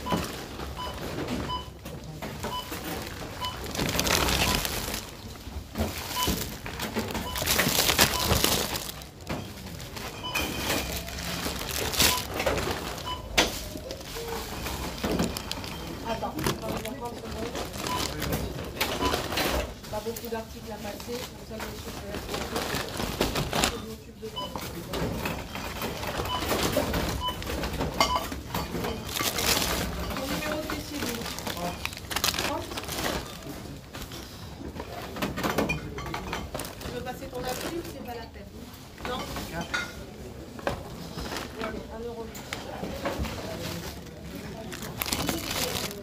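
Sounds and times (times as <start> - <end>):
barcode scanner beeps: 0.0 - 5.0, 6.1 - 16.3, 17.8 - 18.4
checkout scanner beeps: 0.0 - 21.3, 23.5 - 33.6
clatter and rustle of goods: 0.0 - 46.0
hum of shoppers: 0.0 - 46.0.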